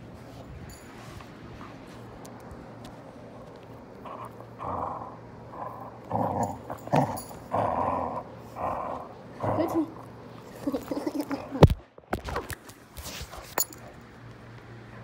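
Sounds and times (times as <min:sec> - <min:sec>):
puppy growling: 0:03.9 - 0:11.6.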